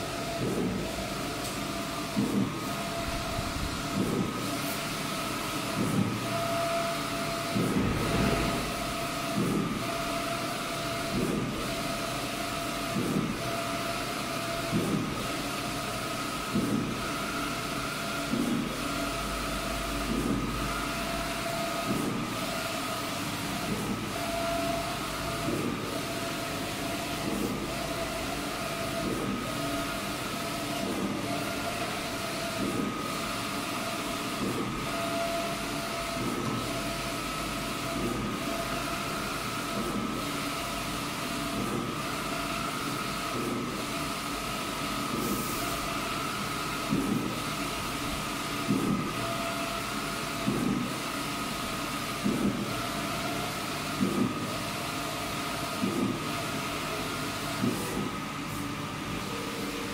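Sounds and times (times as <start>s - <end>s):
printer motor whine: 0.0s - 59.9s.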